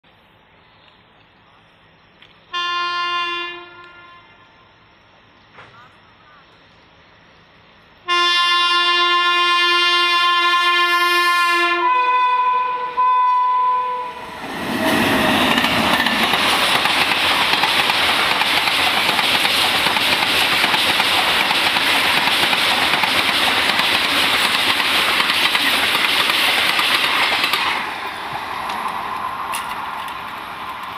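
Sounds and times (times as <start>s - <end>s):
train horn blasts: 2.5s - 4.7s, 8.0s - 14.4s
train wheels rushing on rails: 14.0s - 30.9s.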